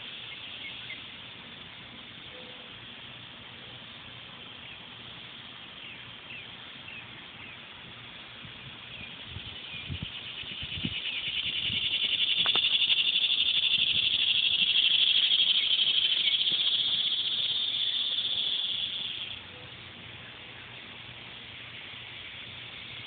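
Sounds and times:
cicada buzzing: 0:00.0 - 0:01.6, 0:08.1 - 0:19.6, 0:21.0 - 0:23.0.

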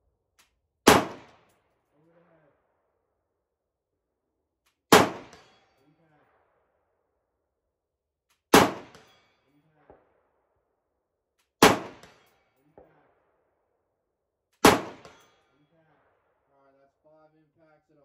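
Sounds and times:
rifle shots: 0:00.8 - 0:01.5, 0:04.9 - 0:05.6, 0:08.5 - 0:10.0, 0:11.6 - 0:13.1, 0:14.6 - 0:15.4.

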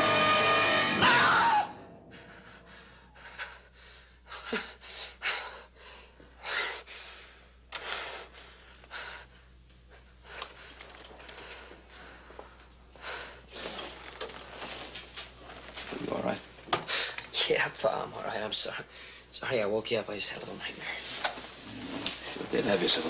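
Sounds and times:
dramatic music: 0:00.0 - 0:03.2.

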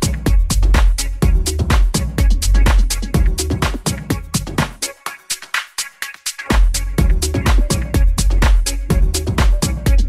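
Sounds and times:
strong bass line: 0:00.0 - 0:04.8, 0:06.5 - 0:10.0.

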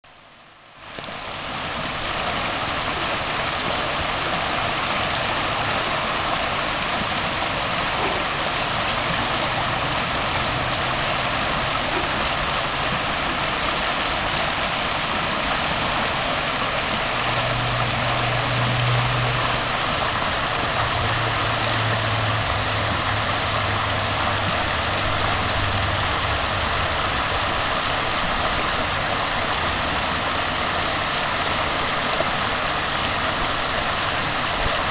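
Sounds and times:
stream rushing over rocks: 0:00.1 - 0:34.9
low droning hum: 0:17.0 - 0:28.9.

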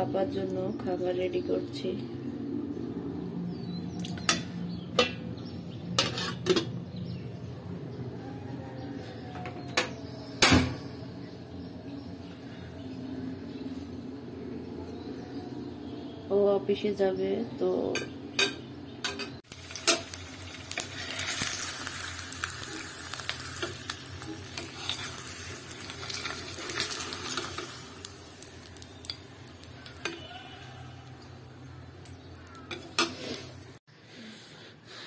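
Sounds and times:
spatula scraping a pan: 0:06.0 - 0:06.7, 0:23.4 - 0:27.8
egg sizzling in a frying pan: 0:19.4 - 0:33.3.

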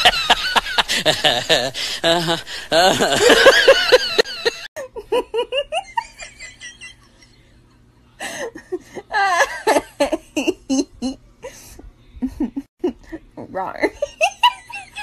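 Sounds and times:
person giggling: 0:00.0 - 0:06.3.

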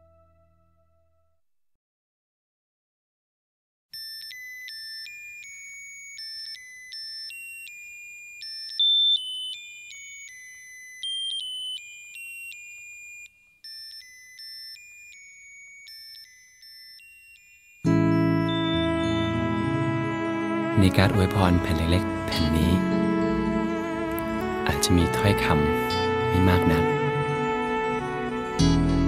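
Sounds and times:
tinny electronic beeping melody: 0:04.0 - 0:29.0.

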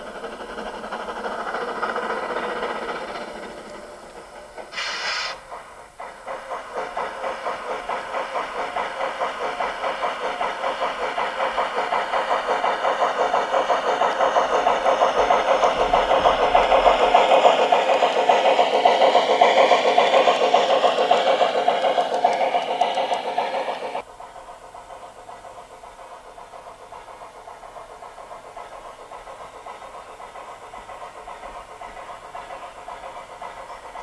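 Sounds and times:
model steam locomotive chuffing: 0:00.0 - 0:34.0
short steam hiss: 0:04.6 - 0:11.5.

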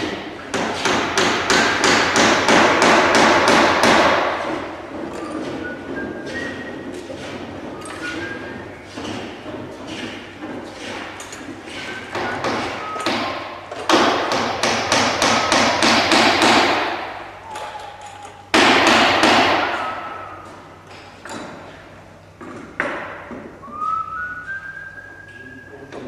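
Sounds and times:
hammer blows on wood: 0:11.7 - 0:17.1.

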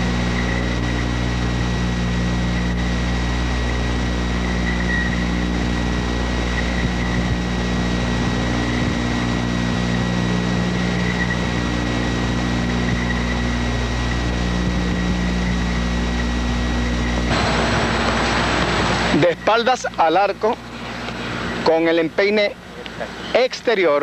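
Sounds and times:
electrical hum: 0:00.0 - 0:24.0
faint high whine: 0:00.0 - 0:24.0
tape hiss: 0:00.0 - 0:24.0.

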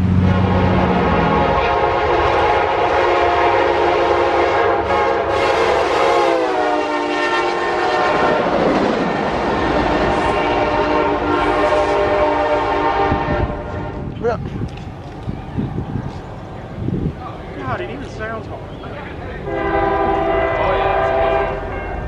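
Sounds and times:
locomotive air horn chord: 0:00.0 - 0:08.6, 0:09.4 - 0:14.1, 0:19.5 - 0:22.0
train rumble: 0:00.0 - 0:22.0.

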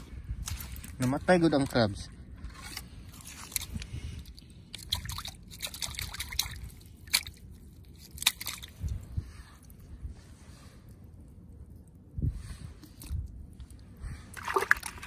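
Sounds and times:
water sloshing in plastic bucket: 0:14.3 - 0:15.0.

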